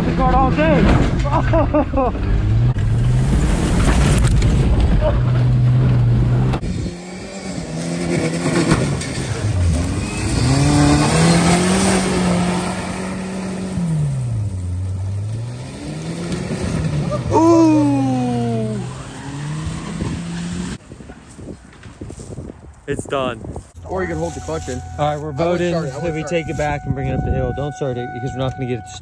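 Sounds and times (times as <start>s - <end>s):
cab and road noise: 0.0s - 29.0s
pickup truck engine revving: 1.4s - 20.8s.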